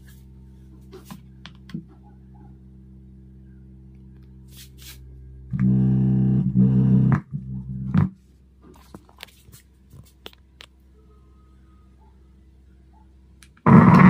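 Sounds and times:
woofer low hum: 0.0 - 14.0
loud speaker buzz: 4.4 - 8.2, 13.6 - 14.0.

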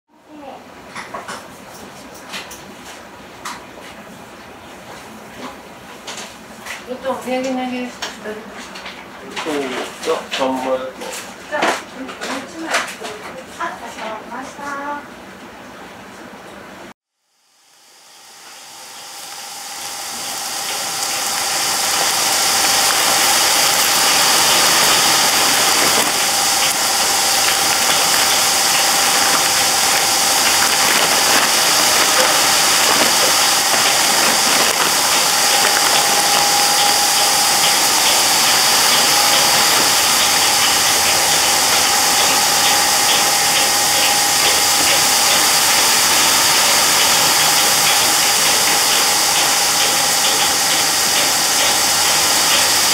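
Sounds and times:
machine hum with whine: 16.1 - 52.9.

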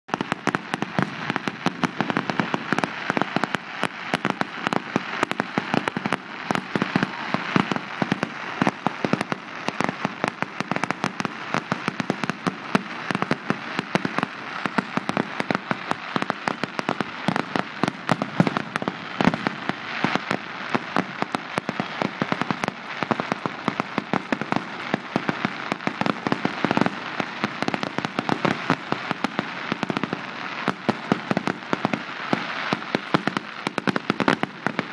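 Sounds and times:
fireworks popping and crackling: 0.0 - 34.9.

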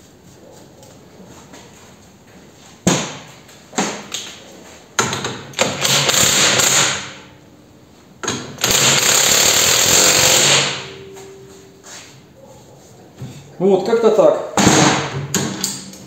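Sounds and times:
handheld power tool running: 5.6 - 7.1, 8.6 - 10.9.

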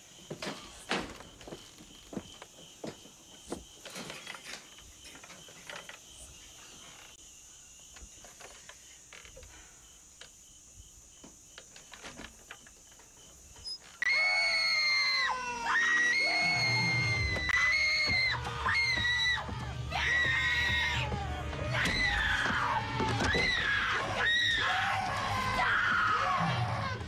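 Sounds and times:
crickets chirping: 0.0 - 21.1
soft footsteps: 0.3 - 3.9.

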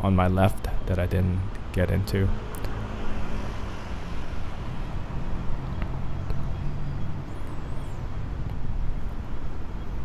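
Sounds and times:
cars passing on a street: 0.0 - 10.0.

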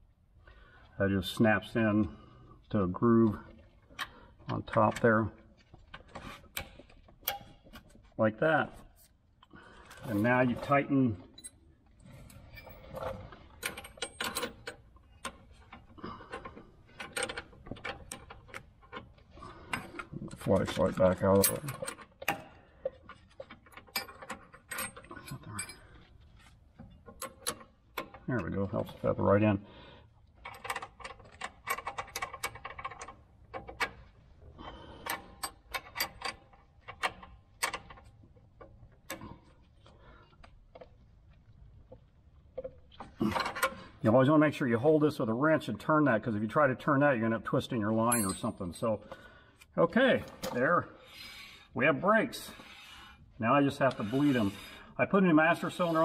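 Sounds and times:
wrenches clinking on metal fitting: 12.2 - 26.2, 35.0 - 39.3, 48.1 - 48.6, 53.7 - 54.8.

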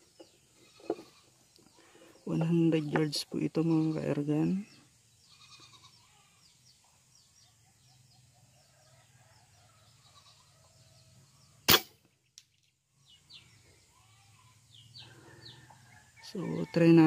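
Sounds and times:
faint bird chirps: 3.9 - 17.0
air rifle shot: 11.7 - 12.0.

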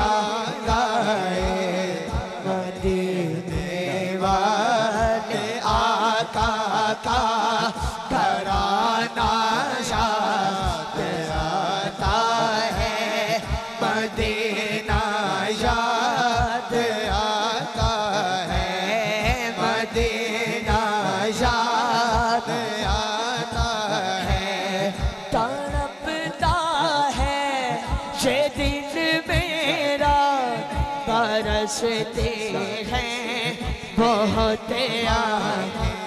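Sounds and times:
man singing ornamented notes: 0.0 - 36.0
quick low beat: 7.8 - 34.5.

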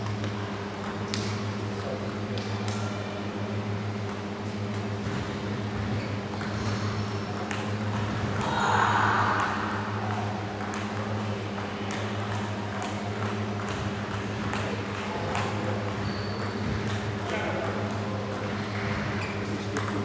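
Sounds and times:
table tennis balls clicking: 6.3 - 8.5, 9.2 - 18.5, 19.7 - 20.0
low hum: 7.8 - 12.2.

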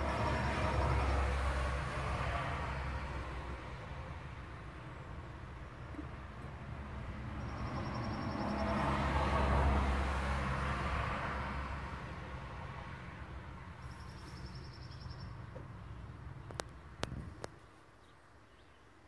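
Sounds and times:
vehicle passing: 0.0 - 15.2.

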